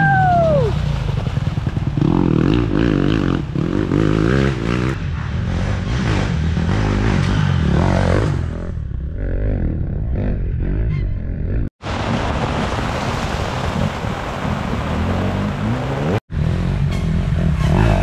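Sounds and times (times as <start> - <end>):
dirt bike engines revving: 0.0 - 11.6, 14.6 - 18.0.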